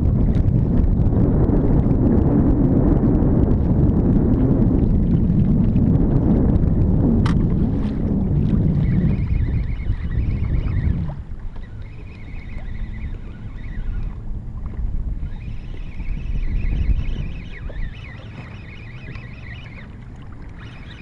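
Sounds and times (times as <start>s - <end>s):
water sloshing against kayak hull: 0.0s - 1.0s, 3.5s - 21.0s
wind buffeting microphone: 0.0s - 21.0s
faint wavering high tone: 8.8s - 14.2s, 15.2s - 21.0s.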